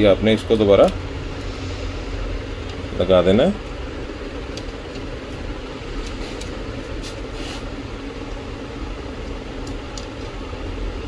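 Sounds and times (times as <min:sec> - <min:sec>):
background hum and rumble: 0:00.0 - 0:11.0
wire connectors clicking: 0:00.7 - 0:01.0, 0:04.5 - 0:05.1, 0:09.2 - 0:10.4.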